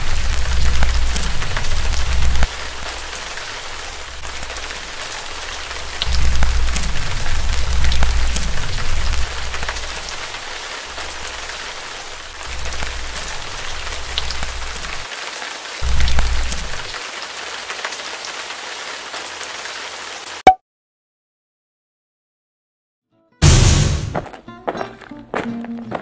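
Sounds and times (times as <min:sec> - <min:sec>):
fire crackling with pops: 0:00.0 - 0:15.1, 0:15.8 - 0:17.0
flames rumbling: 0:00.0 - 0:15.1, 0:15.8 - 0:17.0.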